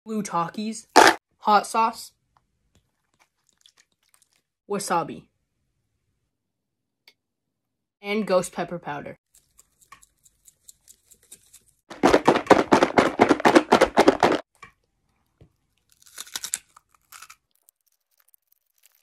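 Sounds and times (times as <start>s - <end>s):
chips rattling in a plastic tub: 11.9s - 14.4s
chip being bitten crunch: 15.5s - 19.0s.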